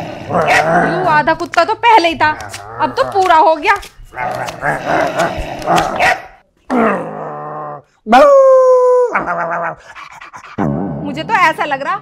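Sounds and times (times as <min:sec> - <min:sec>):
man growling like a dog: 0:06.7 - 0:08.0
man howling: 0:06.7 - 0:09.8
man whining like a dog: 0:06.7 - 0:09.9.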